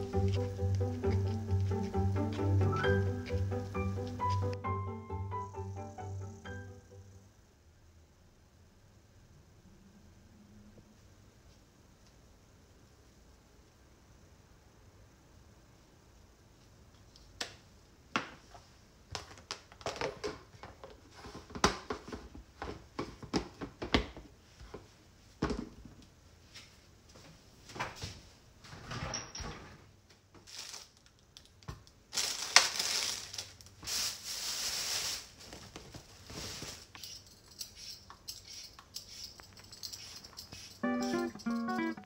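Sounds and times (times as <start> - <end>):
shaker shaken over food: 36.3 - 42.0.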